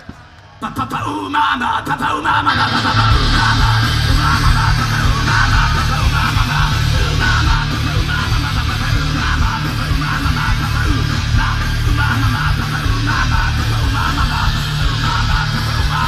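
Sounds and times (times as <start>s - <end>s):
thrash metal band playing live: 0.0s - 16.0s.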